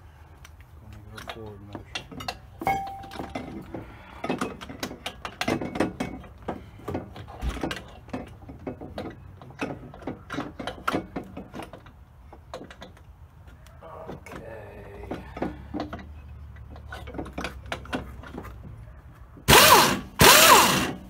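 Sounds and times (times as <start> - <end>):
sharp metal clink: 2.6 - 3.5.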